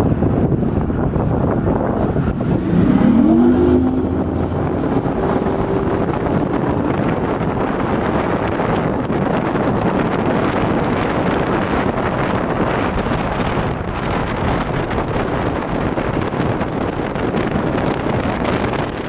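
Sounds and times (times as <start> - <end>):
boat motor: 0.0 - 10.7
wind rushing over microphone: 0.0 - 19.0.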